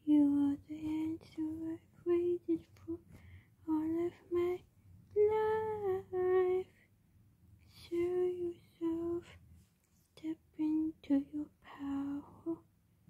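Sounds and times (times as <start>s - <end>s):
woman humming a melody: 0.0s - 3.0s, 5.2s - 6.6s, 10.2s - 12.6s.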